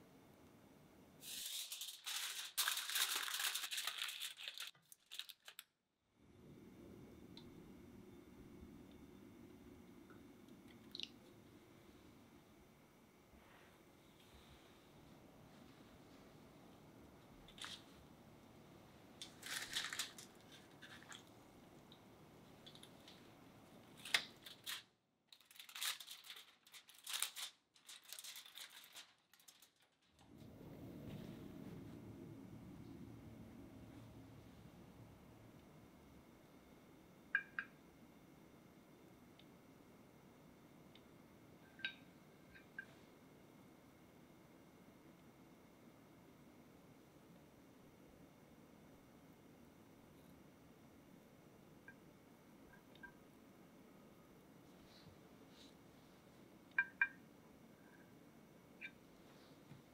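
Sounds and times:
faint low hum: 0.0s - 24.8s, 25.6s - 59.9s
aluminium foil crinkling: 1.2s - 5.8s, 17.5s - 17.9s, 19.2s - 21.3s, 23.8s - 30.2s.

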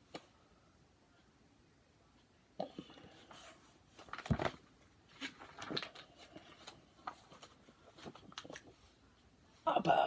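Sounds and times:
paper pages rustling: 3.3s - 9.0s
book thump: 4.1s - 4.6s.

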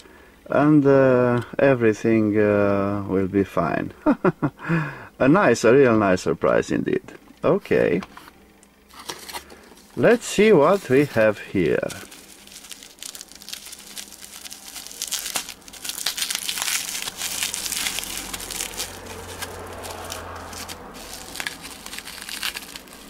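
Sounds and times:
bubble wrap crinkling: 8.9s - 23.0s.

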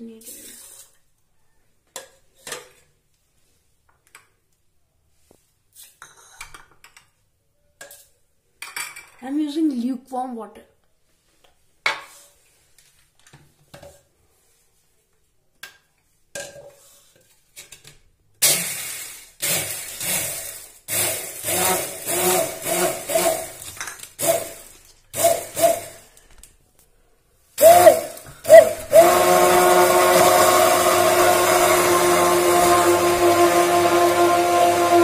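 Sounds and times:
hand blender whipping: 18.4s - 26.1s, 27.6s - 35.0s.

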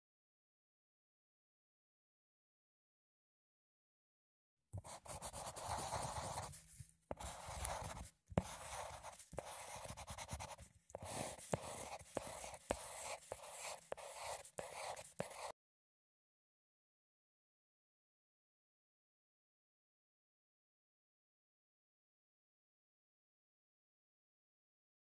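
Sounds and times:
scratchy rustling and scraping: 4.8s - 15.5s.

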